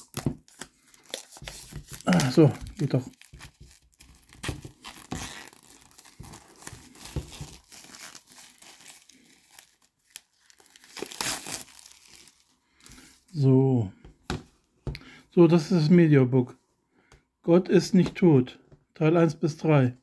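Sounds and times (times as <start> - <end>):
plastic wrap crinkling and tearing: 0.0 - 13.2.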